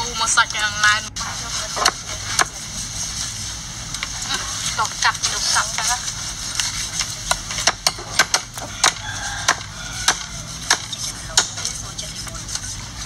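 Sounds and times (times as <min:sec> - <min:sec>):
cleaver chopping on wooden block: 0:07.6 - 0:11.6.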